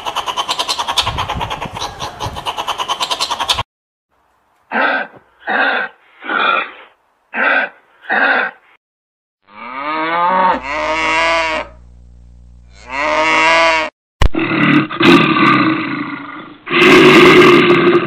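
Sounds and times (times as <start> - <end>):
water buffalo mooing: 9.4 - 11.8, 12.7 - 13.9.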